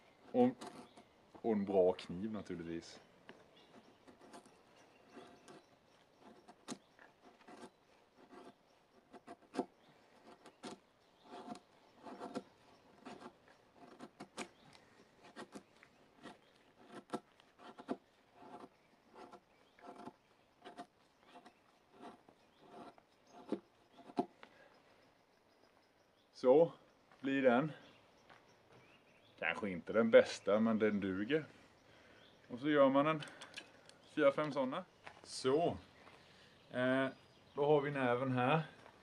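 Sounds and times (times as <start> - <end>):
knife scraping wooden stick: 3.6 - 14.6, 15.2 - 24.3.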